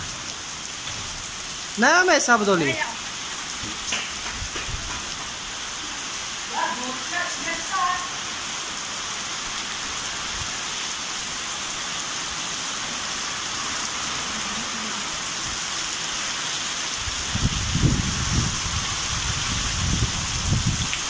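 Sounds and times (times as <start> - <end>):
heavy rain pouring: 0.0 - 21.0
low gusting rumbles: 3.6 - 5.6, 17.0 - 21.0.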